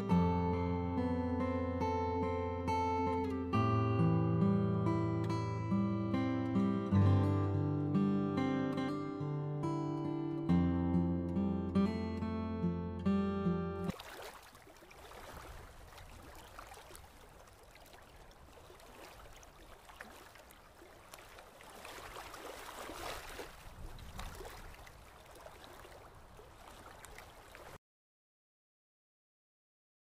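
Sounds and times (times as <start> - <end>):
waves washing onto beach: 13.9 - 27.8.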